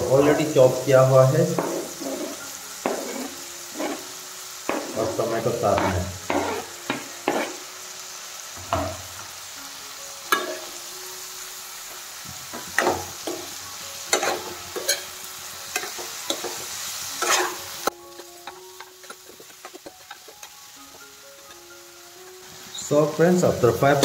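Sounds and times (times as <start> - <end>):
frying sizzle: 0.0 - 24.0
spoon scraping metal pan: 1.5 - 4.1, 4.7 - 7.6, 14.1 - 15.1, 17.2 - 20.6.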